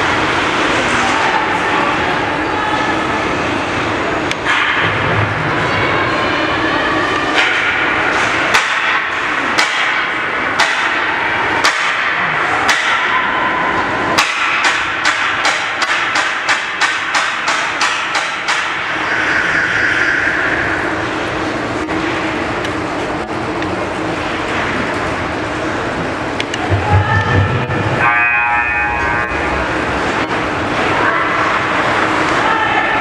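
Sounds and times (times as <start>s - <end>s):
arena crowd noise: 0.0s - 33.0s
rhythmic sharp bangs: 7.3s - 23.0s, 23.8s - 32.4s
brief held tone: 28.0s - 29.9s.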